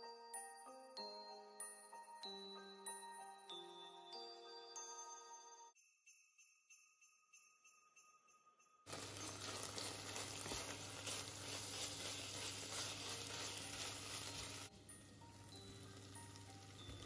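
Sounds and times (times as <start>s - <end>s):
wooden spoon stirring: 8.9s - 14.7s
faint light music: 8.9s - 17.0s
food sizzling in a pot: 8.9s - 17.0s.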